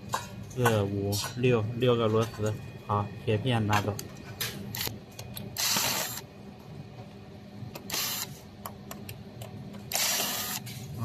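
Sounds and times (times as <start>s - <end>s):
electric screwdriver whirring: 5.6s - 6.2s, 7.8s - 8.3s, 9.9s - 10.7s.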